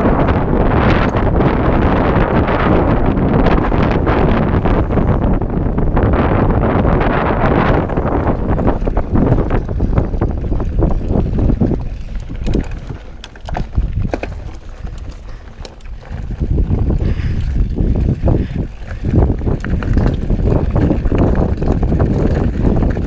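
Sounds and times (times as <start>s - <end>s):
bike clicks and rattles: 0.0s - 23.0s
wind buffeting microphone: 0.0s - 23.0s
tyres rumbling over dirt: 6.4s - 23.0s.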